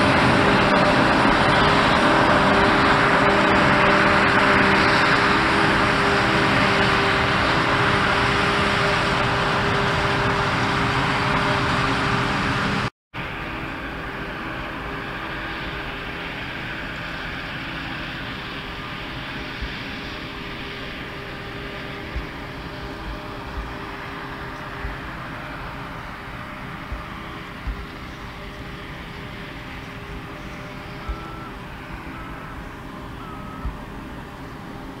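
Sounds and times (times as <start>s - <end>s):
forage harvester machinery drone: 0.0s - 35.0s.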